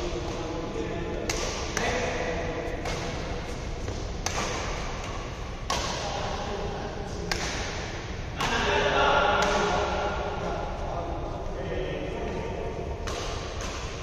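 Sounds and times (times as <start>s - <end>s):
rackets hitting shuttlecock: 0.1s - 6.5s, 7.1s - 10.2s, 13.0s - 14.0s.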